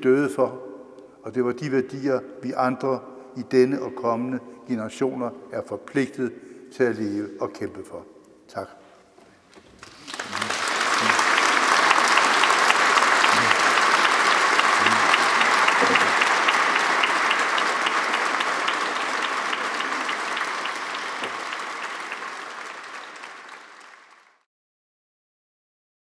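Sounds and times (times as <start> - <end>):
audience applauding: 9.7 - 24.5.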